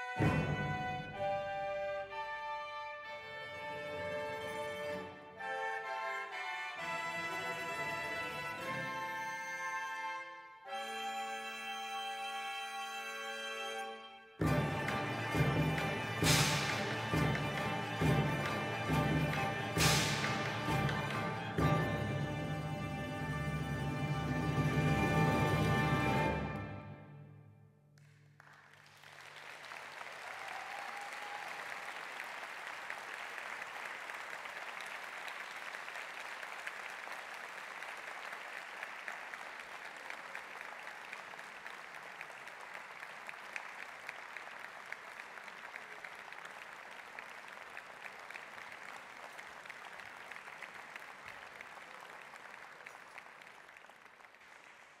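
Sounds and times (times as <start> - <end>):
audience applauding: 14.4 - 23.4, 28.0 - 55.0.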